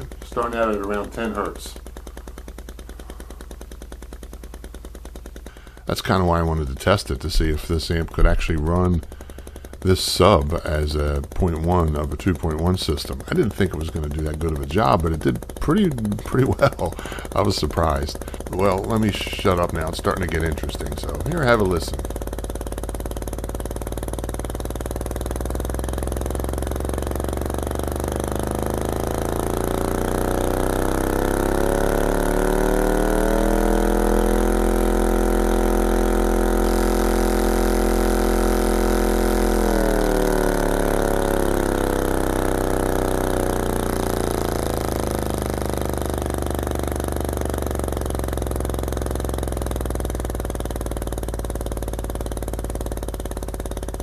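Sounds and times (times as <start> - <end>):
subwoofer playing low sine tone: 0.0 - 54.0
buzzy overtone: 28.2 - 50.1.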